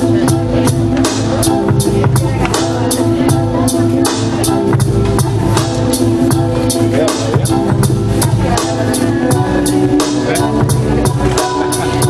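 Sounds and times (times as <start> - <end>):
deep bass: 0.0 - 12.0
drum machine beat: 0.0 - 12.0
synth chords: 0.0 - 12.0.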